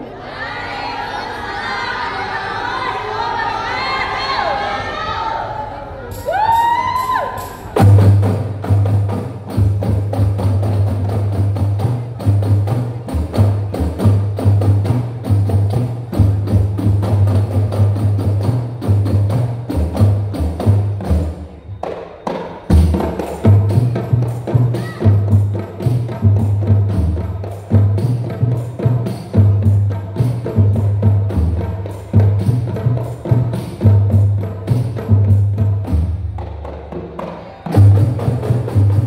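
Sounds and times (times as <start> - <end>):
hand-struck frame drums: 7.7 - 39.0
deep low drum beat: 7.8 - 21.3.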